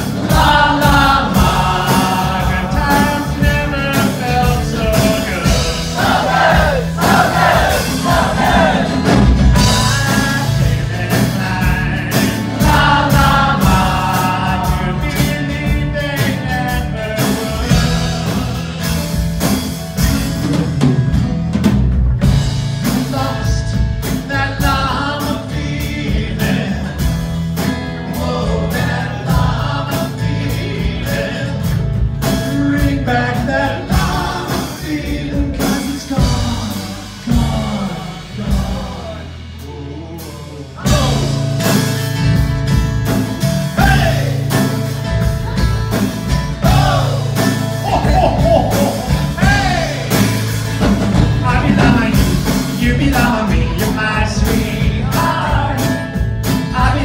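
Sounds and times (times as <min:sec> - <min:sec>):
drums: 0:00.0 - 0:57.0
guitars: 0:00.0 - 0:57.0
person singing: 0:32.4 - 0:41.8, 0:46.6 - 0:50.4, 0:51.4 - 0:57.0.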